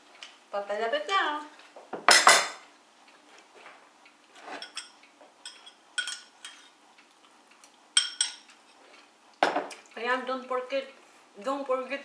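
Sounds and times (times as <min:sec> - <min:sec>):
spoon clinking against bowl: 0:04.6 - 0:06.6, 0:08.0 - 0:08.5.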